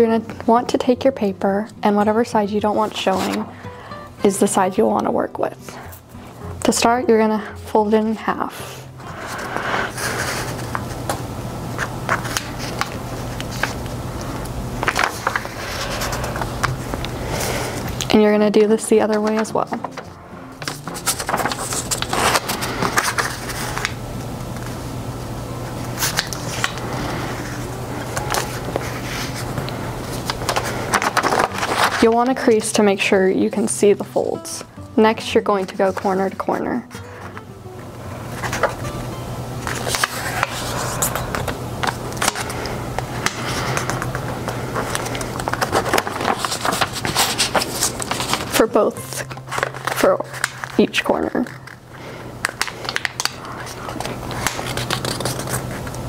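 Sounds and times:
low steady hum: 0.0s - 56.0s
paper rustling and crinkling: 9.0s - 11.2s, 11.8s - 18.1s, 19.1s - 24.0s, 25.9s - 32.9s, 38.3s - 38.8s, 39.6s - 56.0s.

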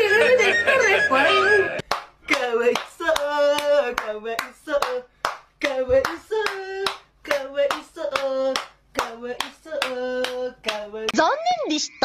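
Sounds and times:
sharp hand claps: 1.8s - 10.8s.

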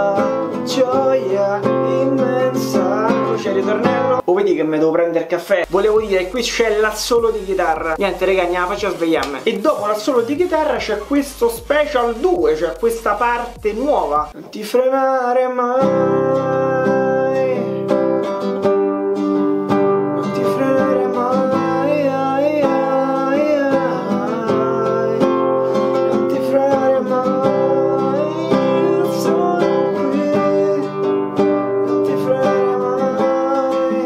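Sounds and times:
classical guitar strumming: 0.0s - 4.2s, 15.7s - 34.0s
man singing: 0.0s - 4.3s, 5.7s - 18.6s, 20.2s - 34.0s.

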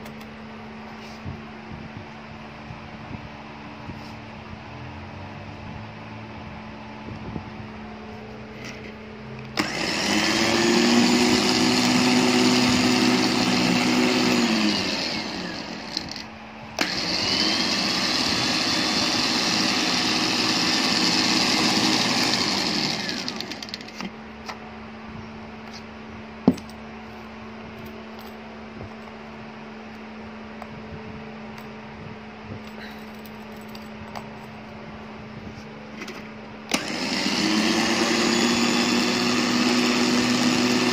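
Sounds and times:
electric winch motor whining: 9.5s - 24.1s, 36.7s - 40.9s.

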